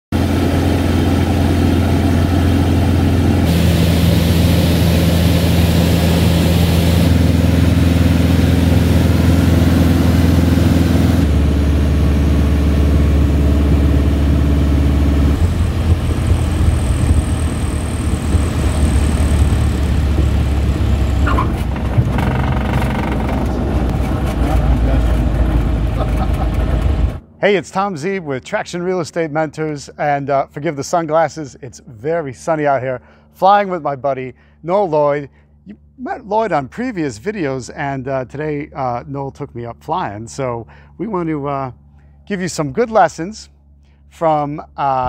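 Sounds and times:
light aircraft engine droning: 0:00.2 - 0:44.8.

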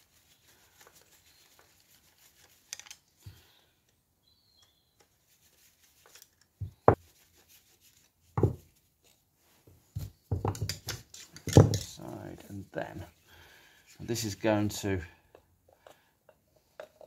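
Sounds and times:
handling knocks and clicks: 0:10.0 - 0:12.1.

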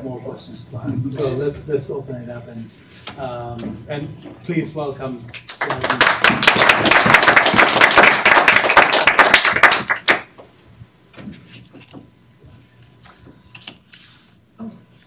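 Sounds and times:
small audience applauding: 0:05.3 - 0:10.4.

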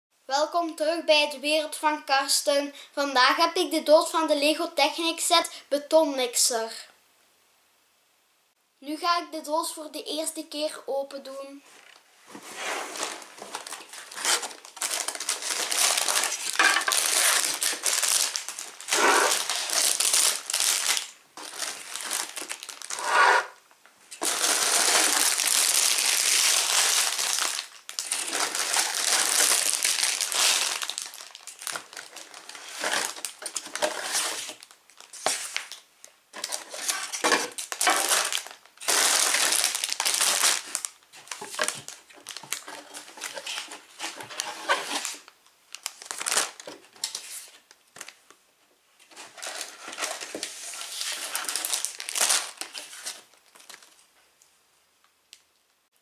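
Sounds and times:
plastic bags crinkling: 0:12.9 - 0:23.6, 0:24.2 - 0:48.3, 0:49.1 - 0:54.1.

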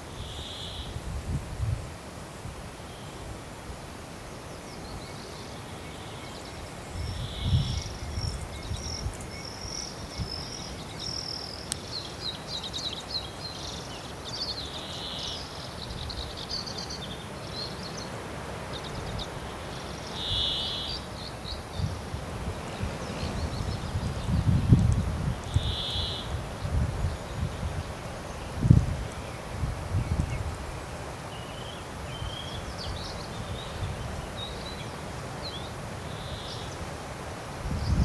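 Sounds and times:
songbirds singing and chirping: 0:00.0 - 0:01.0, 0:04.1 - 0:38.0
wind buffeting microphone: 0:00.9 - 0:02.0, 0:06.9 - 0:10.5, 0:21.5 - 0:30.8, 0:37.6 - 0:38.0.

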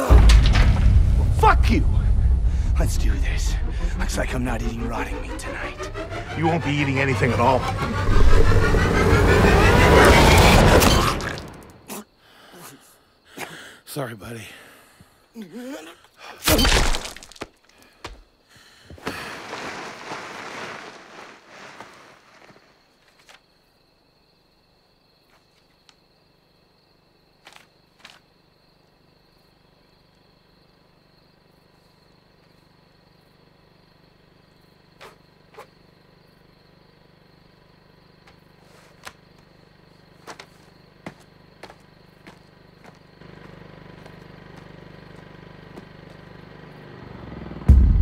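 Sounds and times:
heavy thud: 0:00.0 - 0:06.6, 0:47.7 - 0:48.0
rushing noise: 0:00.0 - 0:11.9
insect drone: 0:00.0 - 0:48.0.

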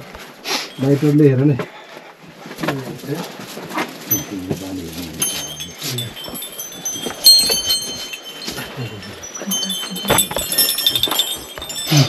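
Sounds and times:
small metal bells ringing: 0:00.5 - 0:01.5, 0:04.0 - 0:12.0.

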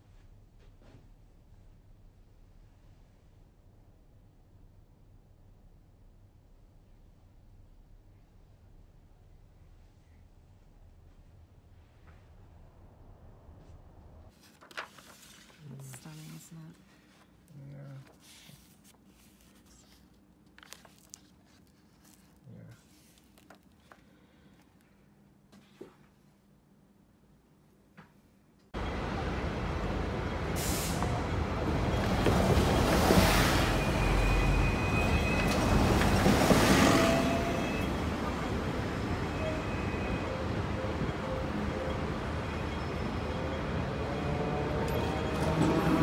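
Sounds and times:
book pages turning: 0:14.3 - 0:24.7
street traffic noise: 0:28.8 - 0:46.0
tram rumbling on rails: 0:28.8 - 0:46.0.

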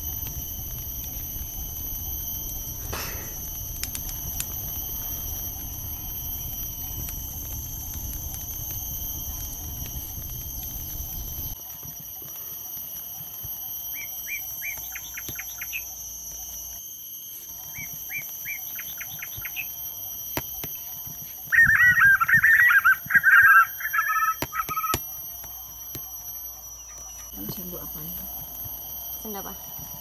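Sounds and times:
steady high-pitched whine: 0:00.0 - 0:30.0
bird chirps and trill: 0:13.9 - 0:15.9, 0:17.6 - 0:19.7, 0:21.5 - 0:25.2
loud warbling birdsong: 0:13.9 - 0:15.9, 0:17.7 - 0:19.8, 0:21.4 - 0:25.2.

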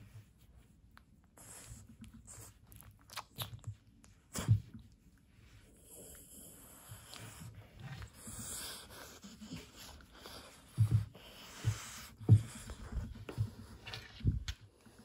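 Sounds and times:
dog breathing with wheezes and snorts: 0:01.3 - 0:02.8, 0:04.2 - 0:15.0.

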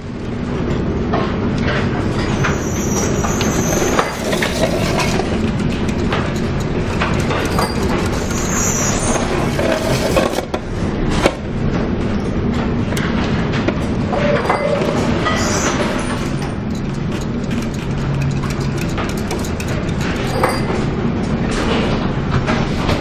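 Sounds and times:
knocks and rattles: 0:03.0 - 0:10.6, 0:12.5 - 0:23.0.

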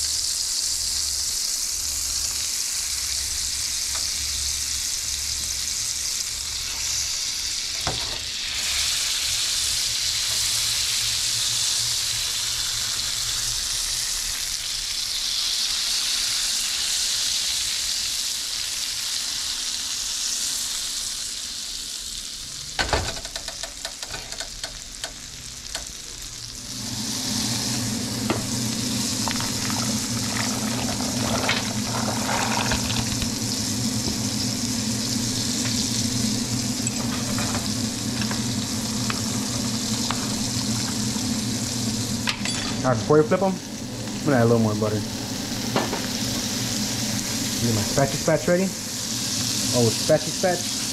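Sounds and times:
fish sizzling in a pan: 0:00.0 - 0:50.9
boiling water bubbling: 0:26.6 - 0:42.5.

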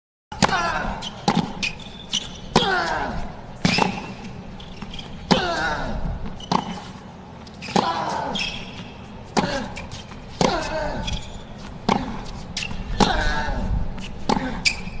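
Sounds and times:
racket striking tennis ball: 0:00.4 - 0:03.0, 0:03.6 - 0:05.7, 0:06.3 - 0:07.0, 0:07.7 - 0:14.9
player grunting: 0:05.3 - 0:06.0.

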